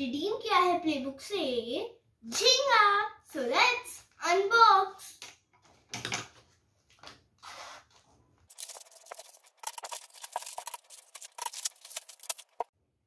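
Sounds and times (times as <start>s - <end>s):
paper crackling and rustling: 8.5s - 12.7s
scissors snipping paper: 8.5s - 12.7s.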